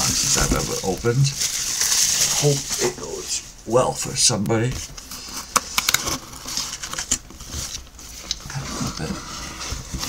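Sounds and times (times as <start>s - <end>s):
cardboard scraping and rubbing: 4.7s - 10.0s.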